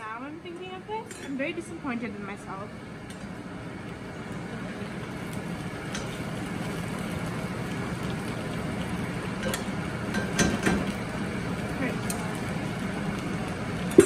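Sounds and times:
fries sizzling in hot oil: 0.0 - 14.0
metal utensils clicking on pan: 9.4 - 11.0.

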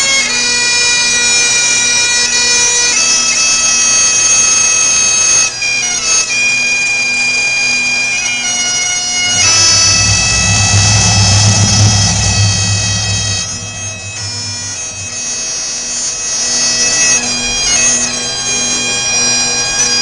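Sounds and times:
pipe band drums rumbling: 9.2 - 15.8.

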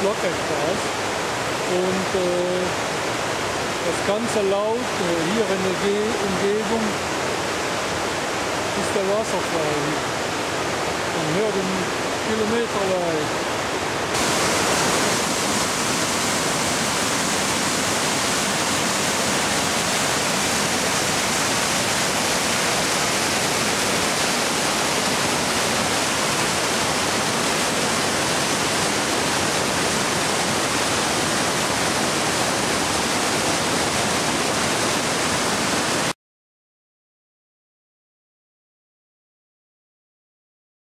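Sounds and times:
water rushing over boulders: 0.0 - 36.2.

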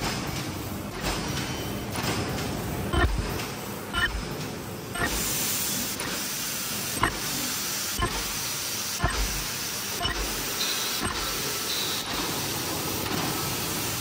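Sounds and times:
sharp machine knocks: 2.9 - 4.4, 5.0 - 5.3, 7.0 - 7.4, 8.0 - 8.4, 9.0 - 12.2
machine hissing: 2.9 - 14.0.

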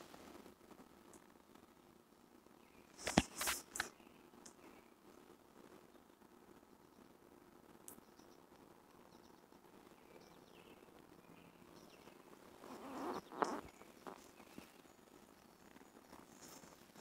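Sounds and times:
rustle: 0.0 - 17.0
faint bird chirps: 7.9 - 17.0.

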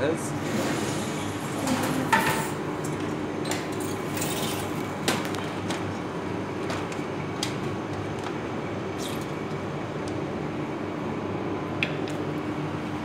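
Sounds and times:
steady background hum: 0.0 - 13.0
dishes and utensils clinking: 1.2 - 2.6.

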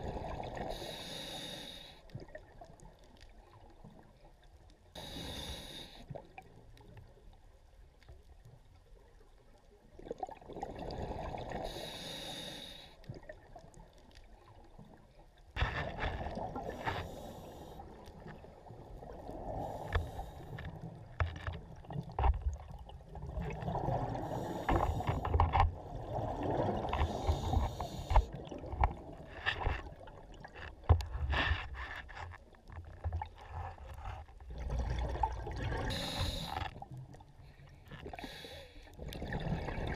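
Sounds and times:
hissing regulator inhale: 0.7 - 2.0, 5.0 - 6.1, 11.6 - 13.0, 16.9 - 17.8, 19.5 - 20.7, 24.2 - 25.4, 27.0 - 28.3, 35.9 - 36.8, 38.1 - 38.9.

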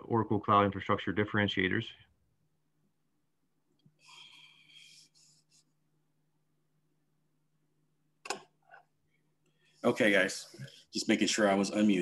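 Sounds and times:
soft breath-like noise: 3.9 - 5.8.

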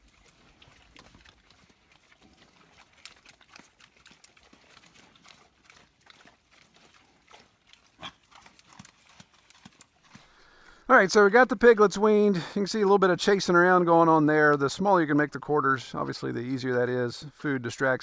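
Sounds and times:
pigs chewing feed: 0.0 - 11.8.

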